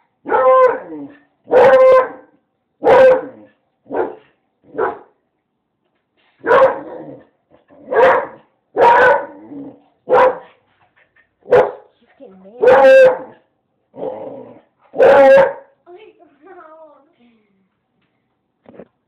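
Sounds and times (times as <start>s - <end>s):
dog barking: 0.2s - 5.2s, 6.4s - 7.0s, 7.8s - 9.4s, 10.0s - 10.6s, 11.4s - 11.9s, 12.6s - 13.4s, 14.9s - 15.7s.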